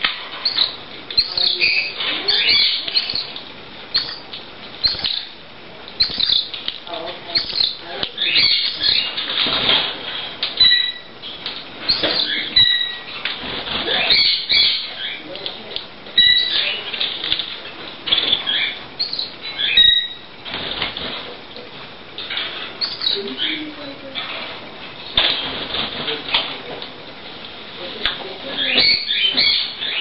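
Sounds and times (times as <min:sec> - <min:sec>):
wing fluttering: 0:00.0 - 0:21.4, 0:22.2 - 0:26.8
chicks chirping: 0:00.0 - 0:24.2, 0:28.4 - 0:30.0.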